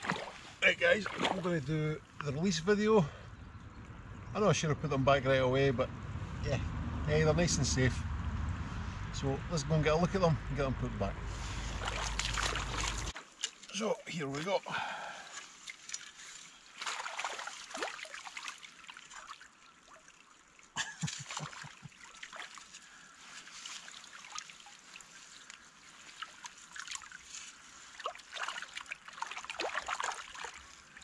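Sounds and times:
net splashing in water: 0.0 - 1.5, 11.4 - 13.8, 15.1 - 31.0
water trickling and dripping: 11.6 - 31.0.

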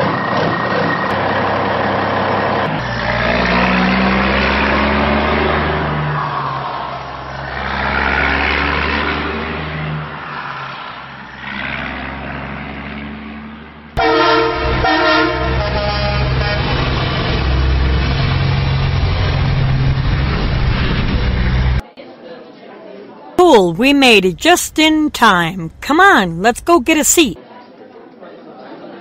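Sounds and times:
horn honking: 14.0 - 16.6.

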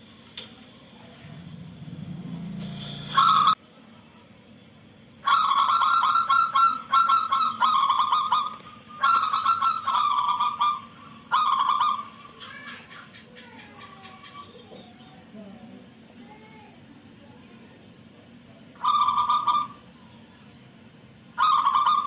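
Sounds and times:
dove cooing: 3.1 - 3.6, 5.2 - 15.4, 18.6 - 20.1, 21.4 - 22.0.

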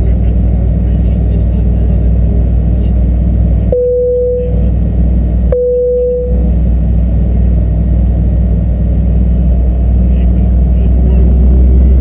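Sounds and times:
single-tone cabin chime: 3.8 - 4.7, 5.5 - 6.6.

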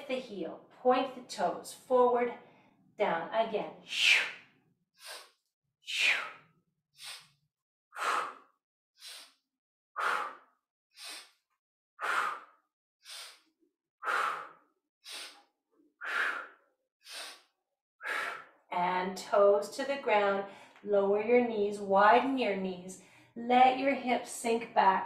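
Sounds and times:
woman breathing hard: 5.0 - 5.3, 5.9 - 6.4, 7.0 - 7.4, 8.0 - 9.4, 10.0 - 11.4, 12.0 - 15.4, 16.0 - 18.6.

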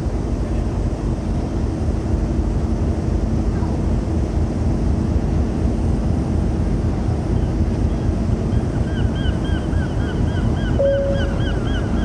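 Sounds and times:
ship machinery rumble and hum: 0.0 - 12.0
faint chirps: 10.8 - 11.6.

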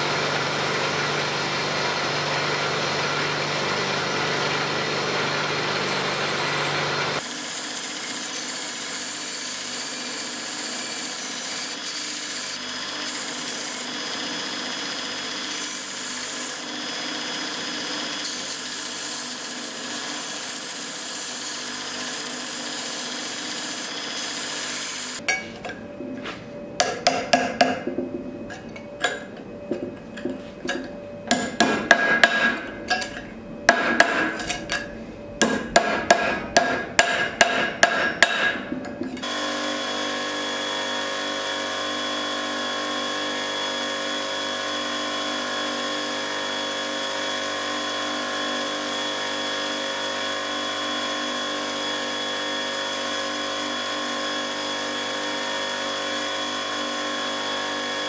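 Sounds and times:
belt grinder grinding metal: 0.0 - 25.2
hammer striking metal on anvil: 26.8 - 29.2, 29.8 - 39.3.

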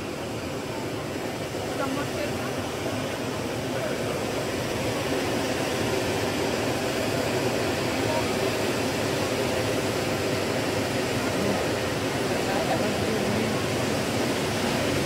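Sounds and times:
firework fountain hissing: 0.0 - 15.0
crowd voices: 11.0 - 15.0.

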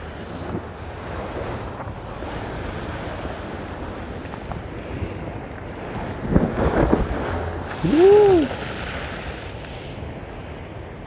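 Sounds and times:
wind buffeting microphone: 0.0 - 11.0
surf crashing against seawall: 5.8 - 10.6
person exclaiming: 7.8 - 8.5.

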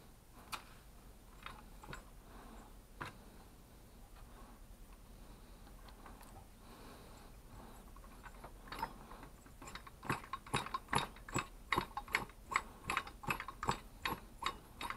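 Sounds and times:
engine flywheel clicking: 8.0 - 14.9.

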